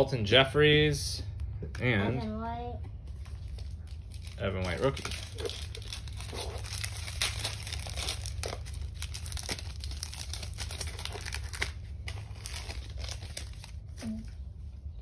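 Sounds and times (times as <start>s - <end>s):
plastic wrapper crinkling: 3.2s - 14.4s.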